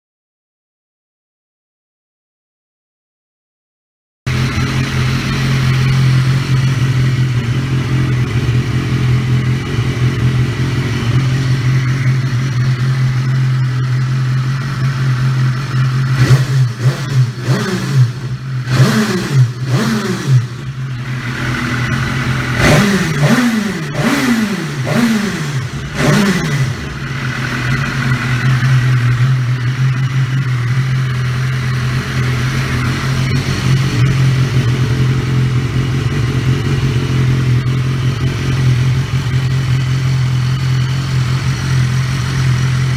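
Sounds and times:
motorcycle engine idling: 4.3 - 42.9
motorcycle engine revving: 4.3 - 42.9.

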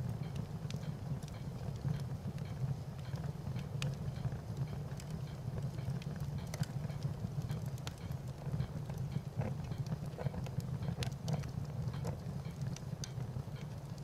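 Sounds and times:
wood fire crackling: 0.0 - 14.0.

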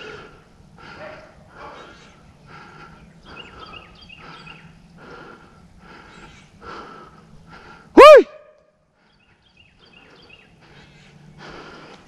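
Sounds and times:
loud short rising call: 8.0 - 8.5.

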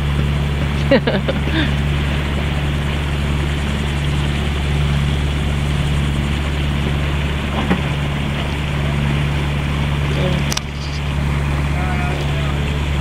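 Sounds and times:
boat engine humming: 0.0 - 13.0
wind and water rushing: 0.0 - 13.0.

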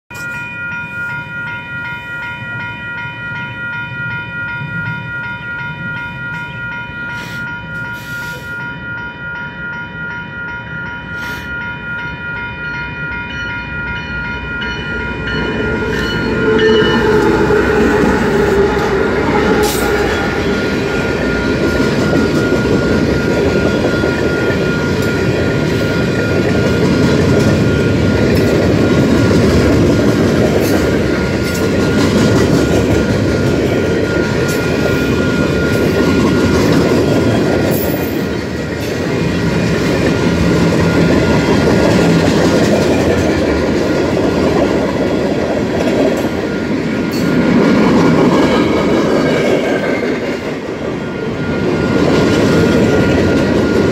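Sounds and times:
level crossing bell ringing: 0.1 - 29.4
train rumbling past: 0.1 - 53.9
train horn: 15.8 - 21.6.

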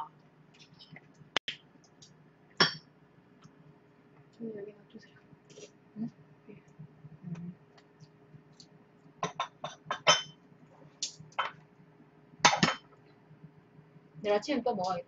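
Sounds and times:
dishes clattering: 2.6 - 2.8, 9.2 - 10.4, 11.4 - 11.6, 12.4 - 13.0.

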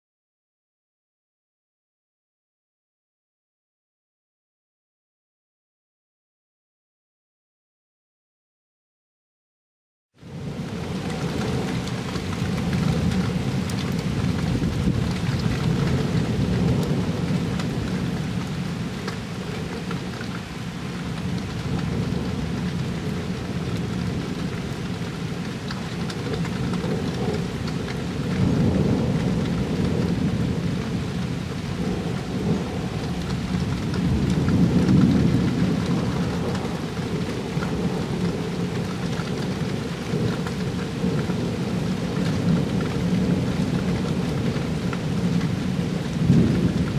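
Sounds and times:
steady rain hissing: 10.2 - 46.9
rolling thunder rumbling: 10.3 - 46.9.

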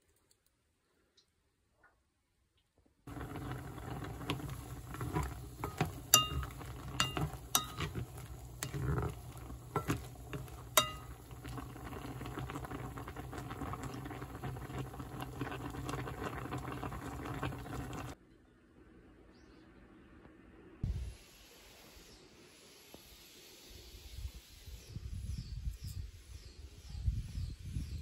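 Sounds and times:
utensil clinking on pot: 3.1 - 14.1
water boiling and bubbling: 3.1 - 18.2.

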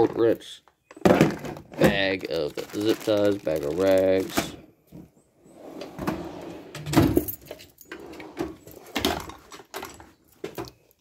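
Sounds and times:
metal drawers sliding: 5.6 - 9.5
tools knocking and clattering: 6.8 - 10.8.

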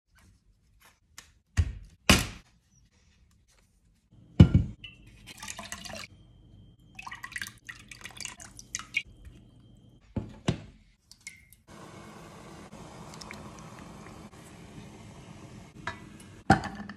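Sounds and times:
water pouring into steel pot: 5.2 - 6.1, 7.0 - 9.1, 12.7 - 14.3
water splashing and dripping: 7.0 - 9.1, 13.1 - 14.4.

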